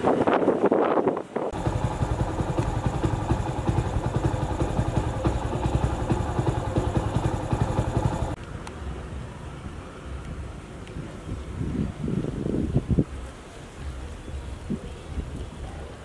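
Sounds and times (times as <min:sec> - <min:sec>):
small engine idling: 0:01.5 - 0:08.4.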